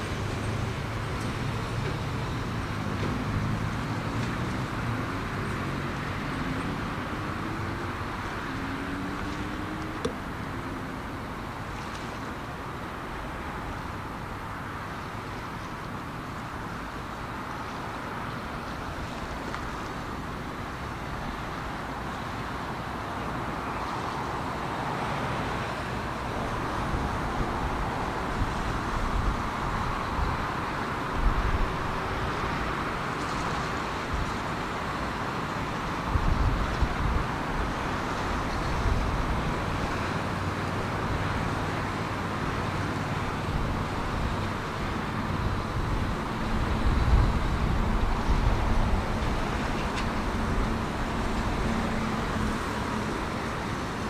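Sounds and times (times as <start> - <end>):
distant traffic rumble: 0.0 - 54.0
wind buffeting microphone: 35.8 - 54.0.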